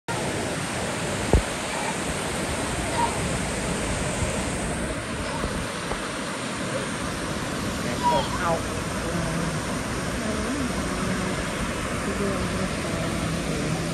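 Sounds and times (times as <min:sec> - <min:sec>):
waterfall rushing: 0:00.1 - 0:13.9
faint voices: 0:06.5 - 0:13.9.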